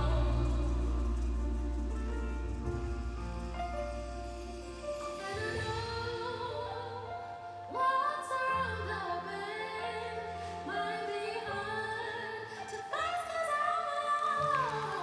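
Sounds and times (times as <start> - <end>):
low sustained accompaniment: 0.0 - 7.8
woman singing with vibrato: 0.0 - 15.0.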